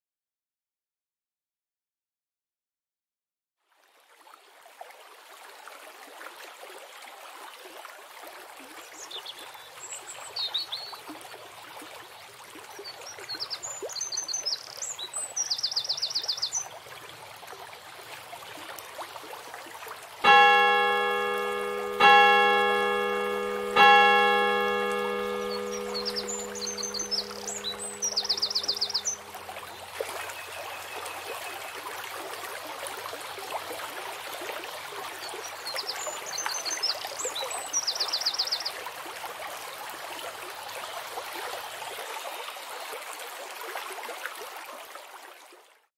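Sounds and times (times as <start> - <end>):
fountain water running: 4.4 - 44.7
church bell ringing: 20.2 - 29.6
small birds chirping: 20.3 - 31.1.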